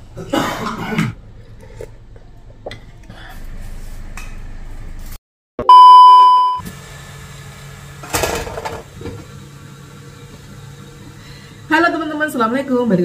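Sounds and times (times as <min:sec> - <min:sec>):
electronic beep: 0:05.6 - 0:06.6.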